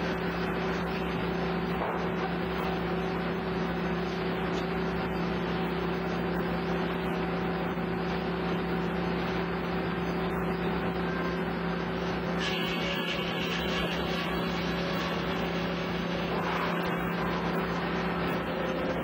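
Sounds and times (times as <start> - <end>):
sawmill machinery humming: 0.0 - 19.0.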